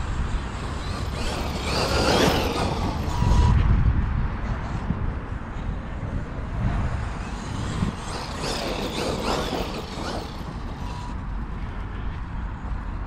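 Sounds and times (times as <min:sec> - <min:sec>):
wind rumble on microphone: 0:00.0 - 0:13.0
electric motor whining: 0:00.4 - 0:03.6.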